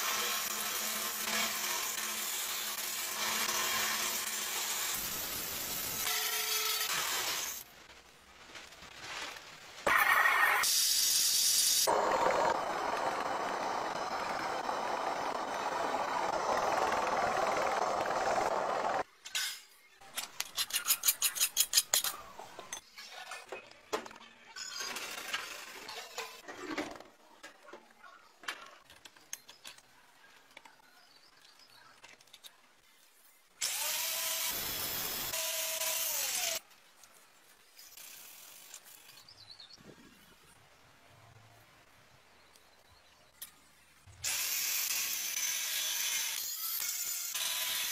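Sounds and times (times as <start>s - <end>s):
belt sander grinding steel: 10.6s - 19.0s
angle grinder whining on steel: 11.6s - 19.0s.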